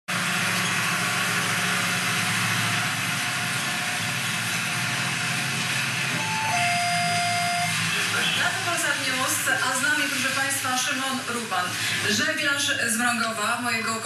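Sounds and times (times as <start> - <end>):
rushing background noise: 0.2 - 13.0
short descending tone: 6.2 - 7.7.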